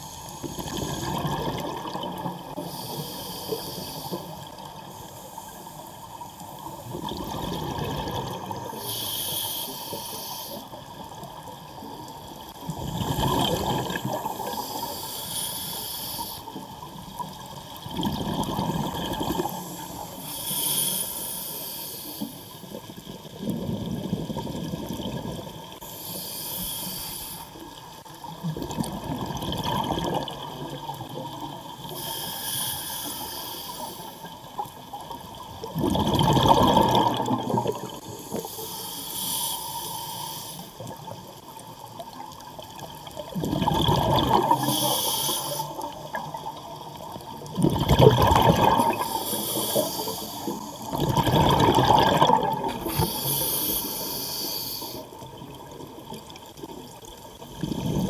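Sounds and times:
gurgle of exhaled bubbles: 0.0s - 2.8s, 6.7s - 8.8s, 12.5s - 14.9s, 17.0s - 20.0s, 22.7s - 25.8s, 28.2s - 31.9s, 34.6s - 38.4s, 40.8s - 45.1s, 45.7s - 54.1s, 55.1s - 58.0s
regulator inhalation hiss: 2.6s - 6.2s, 8.8s - 10.9s, 14.3s - 16.6s, 19.4s - 22.7s, 25.8s - 27.6s, 31.9s - 34.4s, 38.1s - 40.9s, 44.5s - 45.9s, 48.8s - 50.9s, 52.8s - 55.2s.

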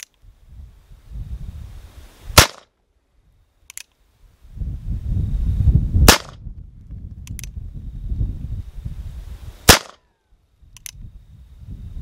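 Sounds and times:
wind on microphone: 0.1s - 2.4s, 4.2s - 12.0s
pistol shots: 2.4s - 2.7s, 6.1s - 6.4s, 9.7s - 10.0s.

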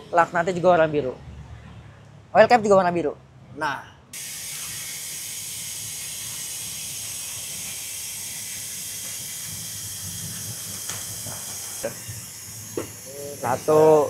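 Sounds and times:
steady hiss: 4.2s - 14.0s.

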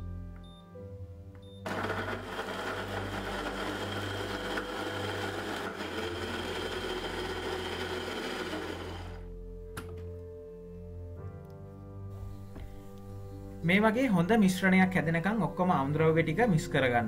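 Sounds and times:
electric blender motor running: 1.6s - 9.3s.

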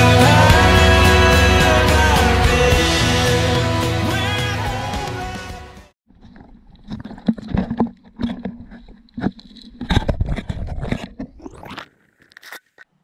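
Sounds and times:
fingers scraping camera housing: 6.2s - 12.9s.

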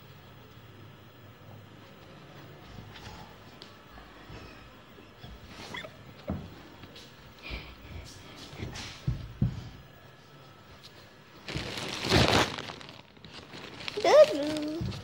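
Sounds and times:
cloth rustling: 10.8s - 15.0s.

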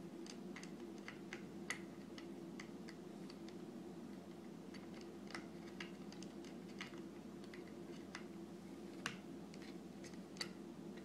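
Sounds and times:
steady low hum: 0.0s - 11.0s
small clicks and ticks: 0.2s - 8.3s.

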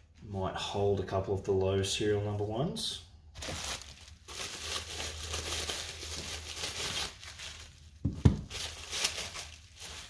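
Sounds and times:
plastic packaging crinkling: 3.4s - 10.0s.

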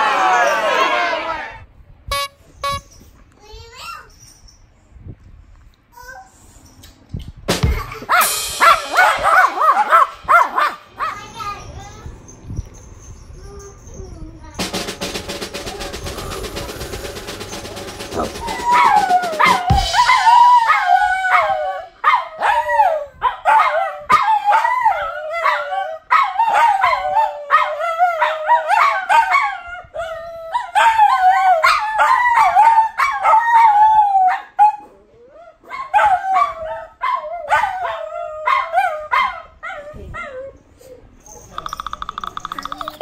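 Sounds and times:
small dogs howling: 18.1s - 40.6s.

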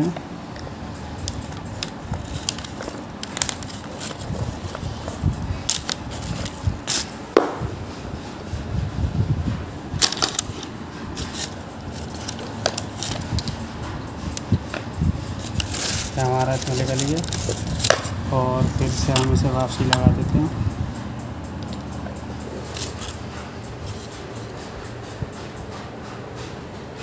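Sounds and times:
sharp metal strikes: 6.9s - 7.9s.

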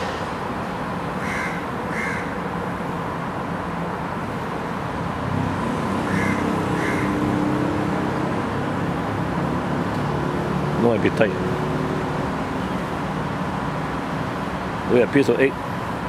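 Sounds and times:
traffic hum: 0.0s - 16.0s
crow-like bird calling: 1.2s - 2.4s, 6.0s - 7.4s.

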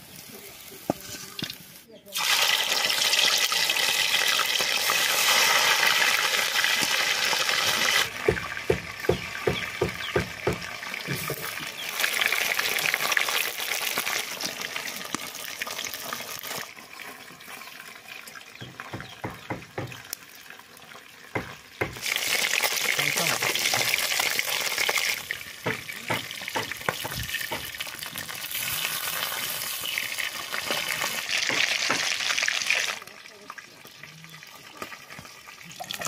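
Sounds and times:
fish sizzling in hot oil: 0.0s - 36.0s.

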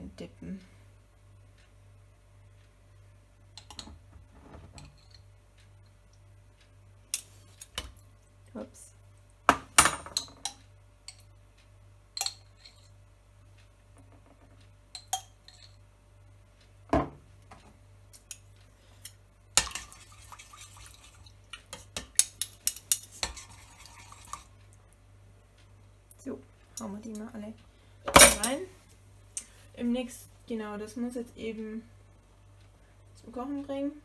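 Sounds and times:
spoon scraping inside pot: 21.8s - 24.5s.

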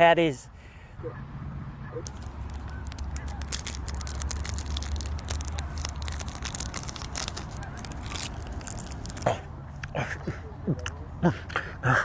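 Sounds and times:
wrapper crinkling: 2.0s - 9.3s.

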